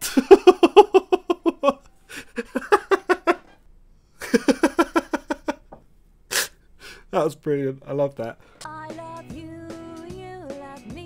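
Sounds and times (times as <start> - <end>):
man laughing: 0.0 - 3.6, 4.2 - 5.8.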